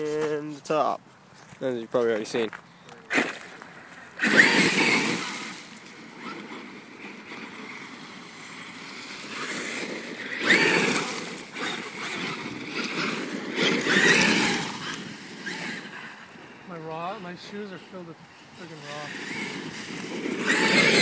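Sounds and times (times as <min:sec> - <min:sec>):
tyres scrabbling through gravel: 0:00.0 - 0:21.0
electric motor whining: 0:04.2 - 0:16.7, 0:18.4 - 0:21.0.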